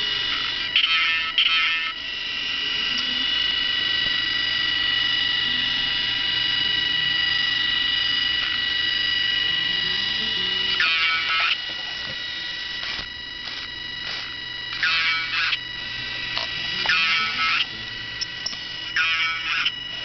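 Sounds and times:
buzzy motor bursts: 0.0 - 20.0
electric motors whining: 0.0 - 20.0.

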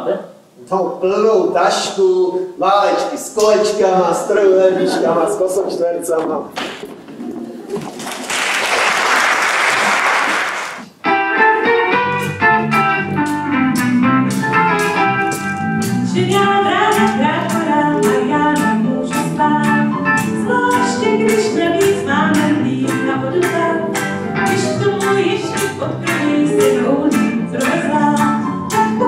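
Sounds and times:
live band playing: 10.7 - 29.0
woman singing: 16.1 - 29.0.

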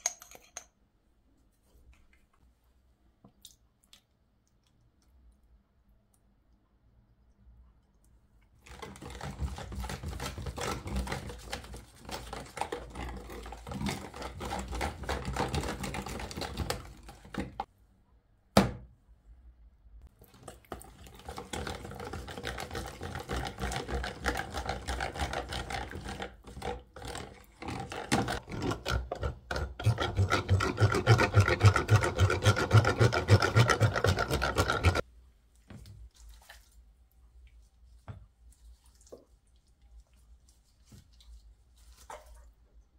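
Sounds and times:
whisk beating marinade in tub: 8.7 - 17.4, 20.2 - 35.0.

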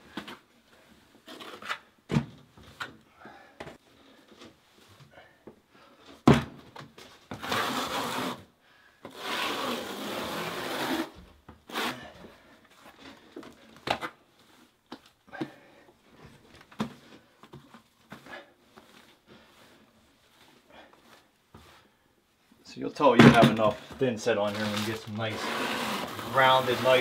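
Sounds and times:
trowel scraping mortar: 24.4 - 27.0.

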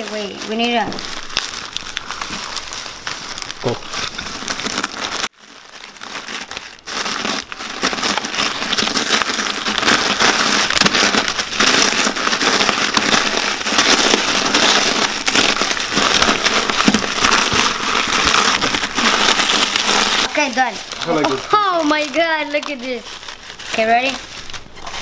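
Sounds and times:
crackers crunching: 0.0 - 25.0
plastic bag crinkling: 0.0 - 25.0.

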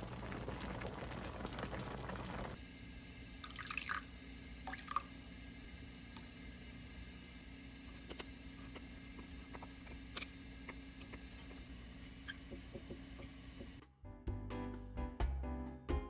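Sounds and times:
liquid pouring into glass bowl: 3.4 - 5.1
background music: 13.8 - 16.0.

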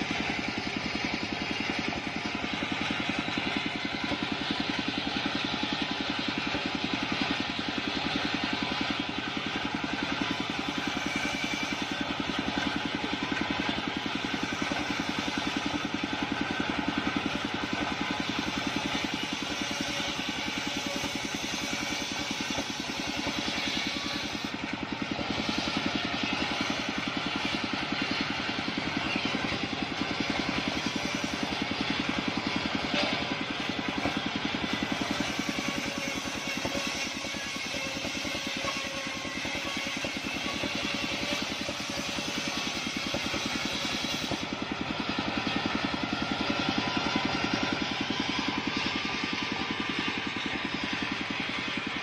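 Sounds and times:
circular saw cutting wood: 0.0 - 52.0
small engine humming: 0.0 - 52.0.

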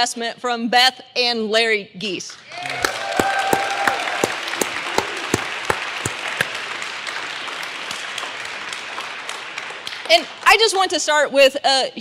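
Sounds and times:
audience applauding: 2.4 - 10.8
sharp nearby claps: 2.6 - 10.6.

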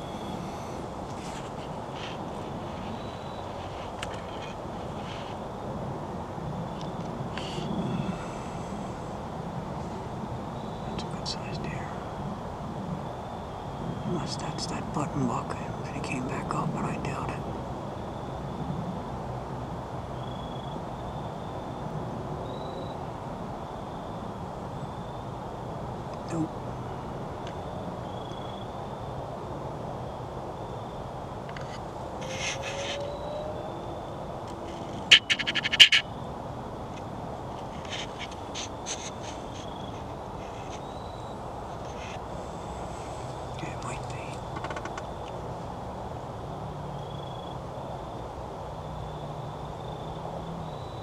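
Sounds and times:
steady low rush: 0.0 - 18.7, 36.4 - 46.6
background hiss: 0.0 - 51.0
bird calling harsh notes: 32.2 - 33.6, 34.6 - 36.2.

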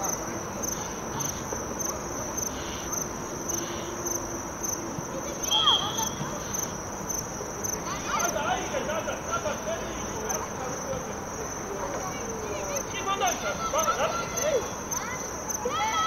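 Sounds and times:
insects chirping: 0.0 - 16.0
short high whistle: 5.5 - 6.2.

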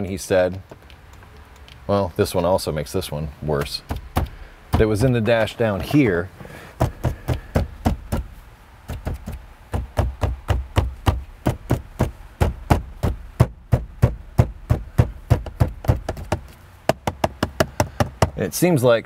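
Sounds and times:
fists knocking on plastic dashboard: 3.6 - 5.5, 6.8 - 18.4.

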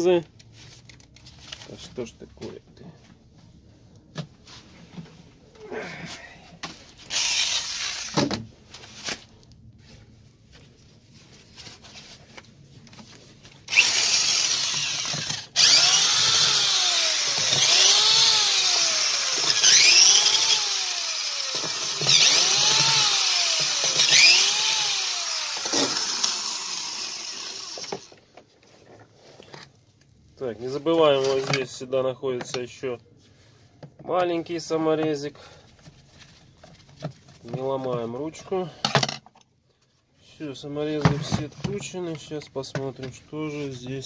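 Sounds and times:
electric screwdriver motor whirring: 7.1 - 8.2, 13.7 - 28.1.

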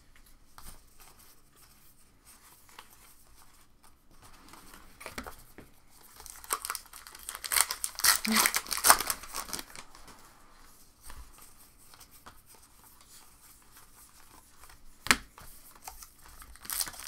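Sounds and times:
wrappers crinkling: 4.3 - 10.3, 15.7 - 17.0.

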